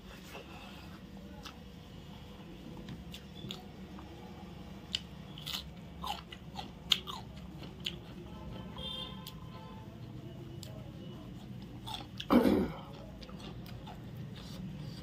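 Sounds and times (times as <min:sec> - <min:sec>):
wet chewing: 0:02.9 - 0:04.1, 0:04.9 - 0:08.2, 0:10.6 - 0:15.0
crunchy bites: 0:04.9 - 0:08.0.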